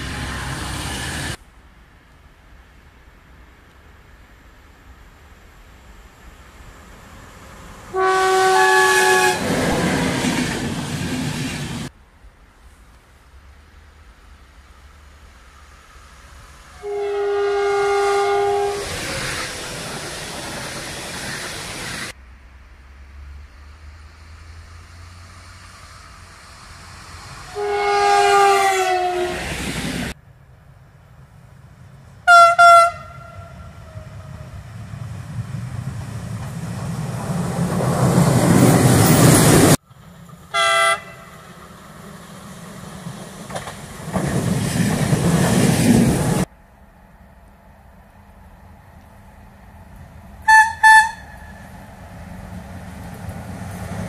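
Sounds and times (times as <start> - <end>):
train rumbling past: 0.0 - 54.0
train horn: 7.9 - 9.6, 16.7 - 19.0, 27.4 - 29.6, 32.2 - 34.5, 40.5 - 41.5, 50.4 - 51.7.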